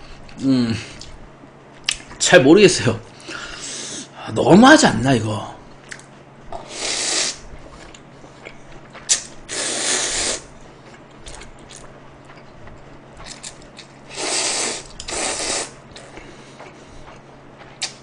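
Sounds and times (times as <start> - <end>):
man slurping noodles: 6.6 - 7.5, 9.1 - 10.5, 14.1 - 16.2
wet chewing clicks: 7.7 - 9.4, 10.8 - 18.0.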